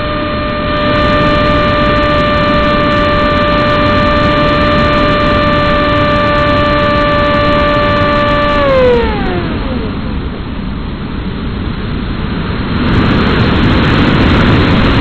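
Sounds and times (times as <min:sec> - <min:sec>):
electric motor whining: 0:00.0 - 0:11.1
rush of air: 0:07.3 - 0:15.0.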